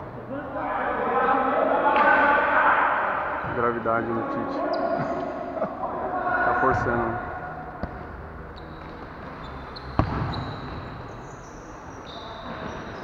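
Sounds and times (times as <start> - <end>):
shoes squeaking on court: 4.6 - 5.4, 7.8 - 13.0.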